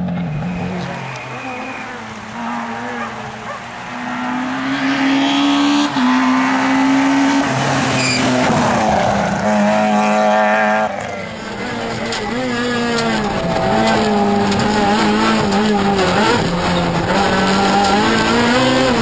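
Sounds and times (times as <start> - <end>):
rally car engine revving: 0.0 - 19.0
tyre squeal: 8.0 - 8.5.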